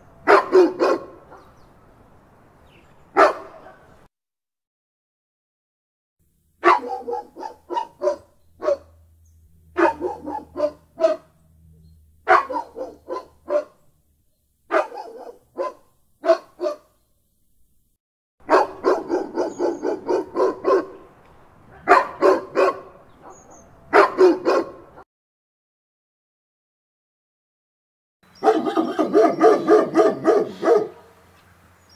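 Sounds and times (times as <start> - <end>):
dog barking: 0.2 - 1.6, 3.1 - 4.0, 6.6 - 9.0, 9.7 - 11.3, 12.2 - 13.8, 14.7 - 16.9, 18.4 - 21.1, 21.7 - 25.0, 28.4 - 31.2.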